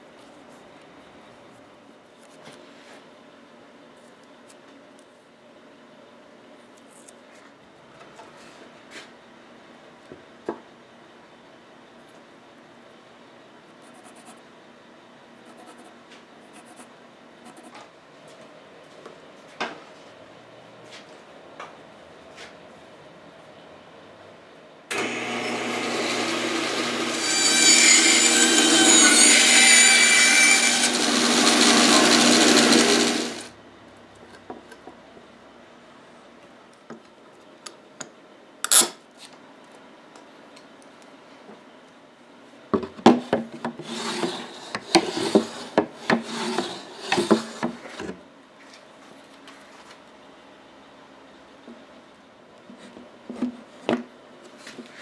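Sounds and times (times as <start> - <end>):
power tool cutting wood: 24.9 - 33.5.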